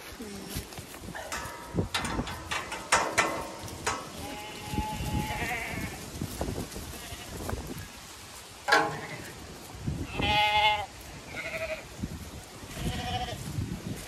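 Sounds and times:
hooves pattering: 0.0 - 14.0
sheep bleating: 10.1 - 11.8.

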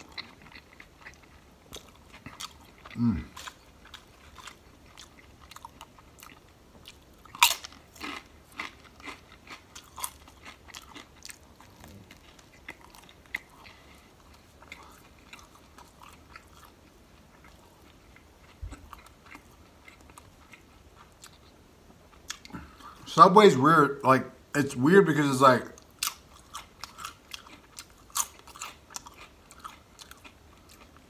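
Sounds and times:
crisp crunching chews: 0.0 - 21.6, 25.8 - 31.0.

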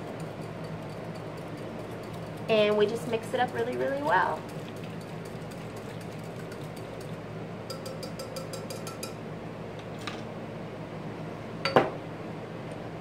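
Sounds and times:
whisk tapping plastic pitcher: 0.0 - 9.2.

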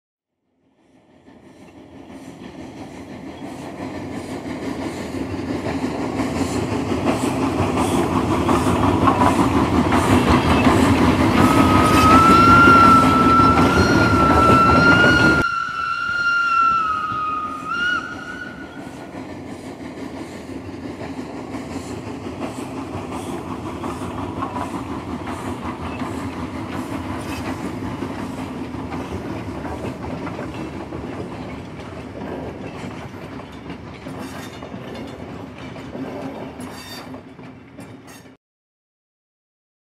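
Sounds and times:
steam train rhythmic clatter: 0.6 - 38.4
steam train whistle: 11.3 - 19.1.

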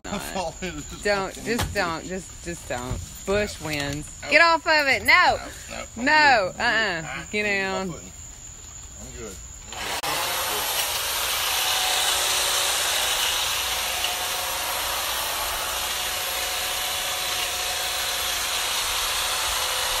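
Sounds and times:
hedge trimmer running: 9.7 - 20.0.

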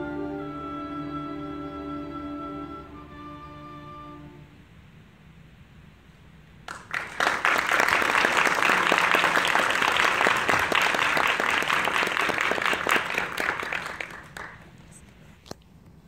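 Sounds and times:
audience applauding: 6.7 - 15.1.

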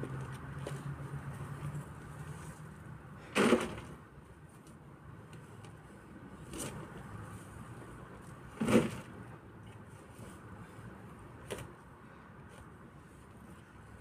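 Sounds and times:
shovel scraping and thudding earth: 3.2 - 4.0, 8.5 - 9.2.

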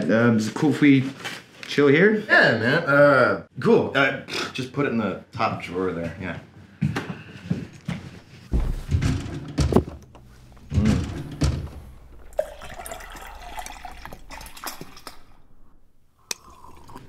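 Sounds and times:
knocks of handling: 6.9 - 12.3
liquid pouring into a mug: 12.2 - 15.3, 16.2 - 17.0.

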